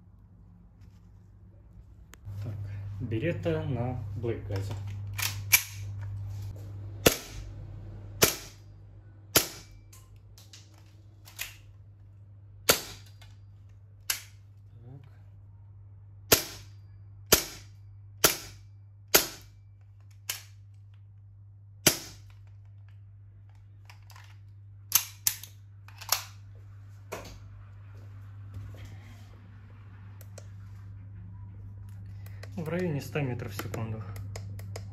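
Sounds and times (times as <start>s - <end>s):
airsoft pistol shots: 7.0s - 7.4s, 8.2s - 8.6s, 9.3s - 9.8s, 12.7s - 13.1s, 16.3s - 16.7s, 17.3s - 19.5s, 21.8s - 22.2s.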